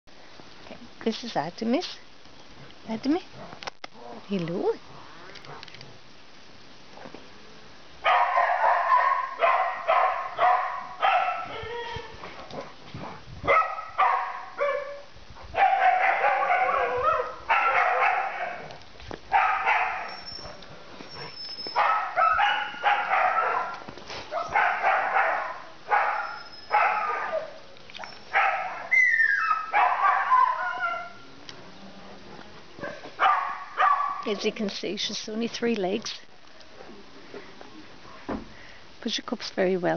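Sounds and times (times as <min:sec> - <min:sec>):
dog yelping and whining: 0:08.2 - 0:12.3, 0:15.6 - 0:18.7, 0:21.1 - 0:31.2.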